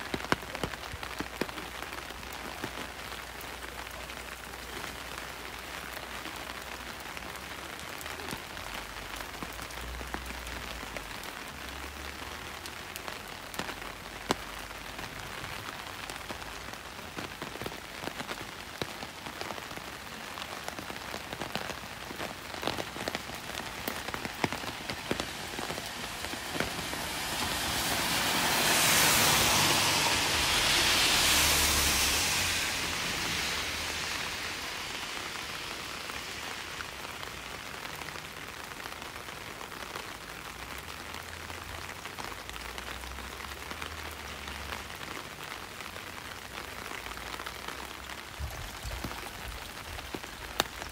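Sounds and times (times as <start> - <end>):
steady rain: 0.0 - 50.9
loud hiss: 26.6 - 35.4.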